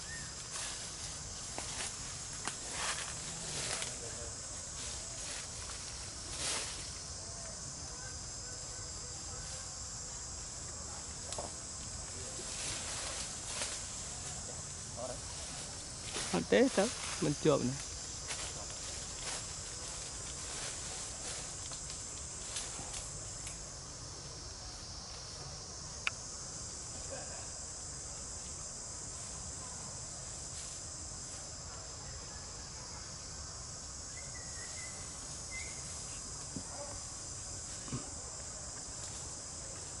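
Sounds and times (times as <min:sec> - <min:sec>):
insects chirring: 0:00.0 - 0:40.0
faint clicks: 0:26.0 - 0:26.2.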